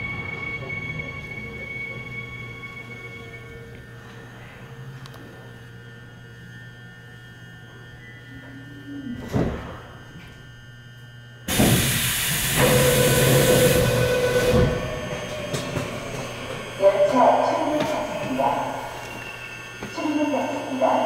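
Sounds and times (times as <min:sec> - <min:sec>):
sliding doors hissing open: 0:11.5 - 0:19.4
steady tone: 0:12.6 - 0:21.0.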